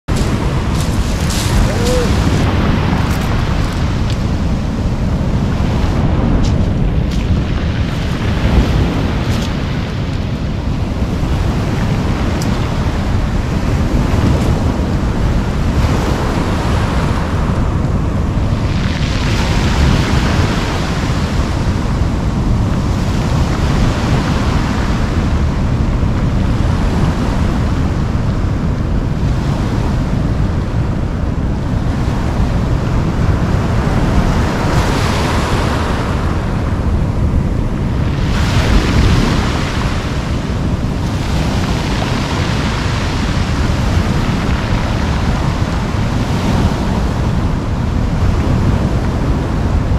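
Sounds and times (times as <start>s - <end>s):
wind rumble on microphone: 0.0s - 49.9s
surf breaking on pebble beach: 0.1s - 17.5s, 37.3s - 48.7s.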